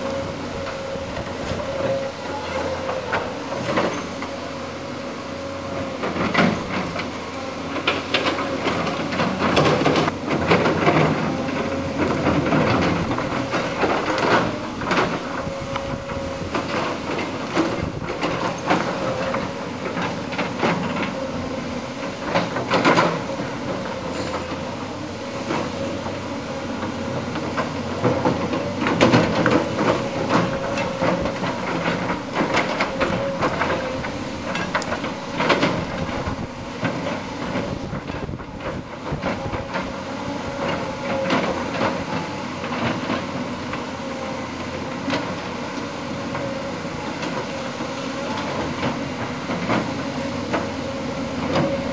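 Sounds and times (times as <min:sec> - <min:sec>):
bucket and tracks clanking on rubble: 0:00.0 - 0:51.9
diesel engine whining: 0:00.0 - 0:51.9.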